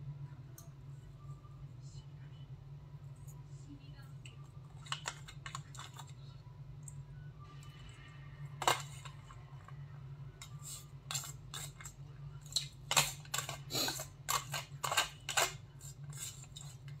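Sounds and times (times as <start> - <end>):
utensil scraping foil tray: 12.9 - 16.9.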